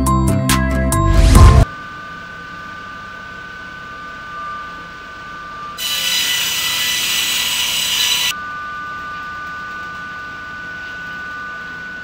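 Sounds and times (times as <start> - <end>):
saw cutting board: 5.8 - 8.3
saw whining: 5.8 - 8.4.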